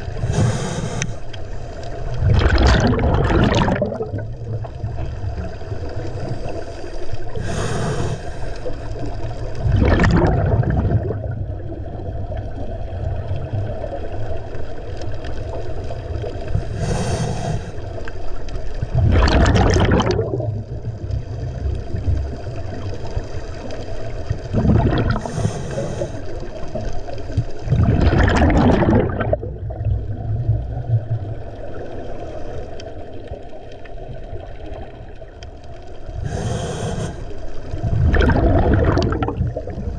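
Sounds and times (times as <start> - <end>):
diver inhaling through regulator: 0.0 - 1.7, 6.3 - 9.1, 16.5 - 18.0, 24.7 - 26.4, 36.2 - 37.6
exhaled bubbles rushing: 2.0 - 6.7, 8.9 - 14.5, 18.6 - 32.5, 36.0 - 39.9.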